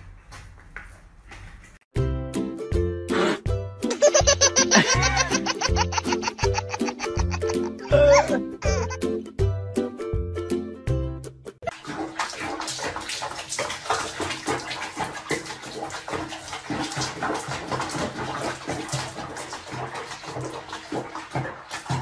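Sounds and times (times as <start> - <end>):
water splashing in a sink: 4.0 - 7.6, 11.6 - 22.0.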